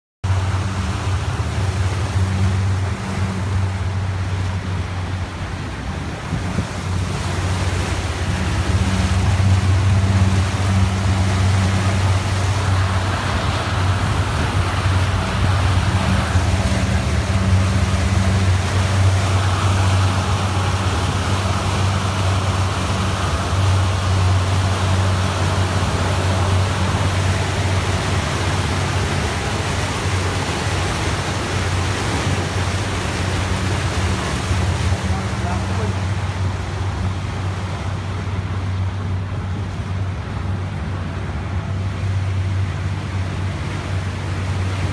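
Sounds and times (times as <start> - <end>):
outboard motor humming: 0.2 - 44.9
water splashing along hull: 0.2 - 44.9.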